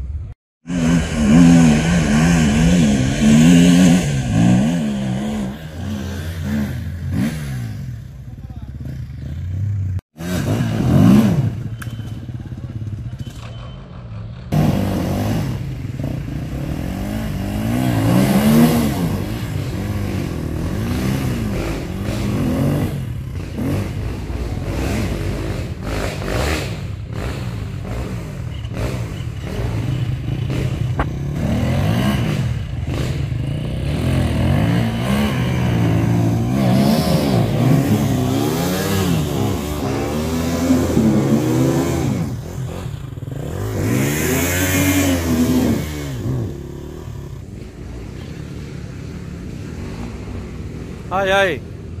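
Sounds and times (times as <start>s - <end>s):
dirt bike engine revving: 0.6s - 12.3s, 14.3s - 51.6s
clatter: 11.6s - 14.6s.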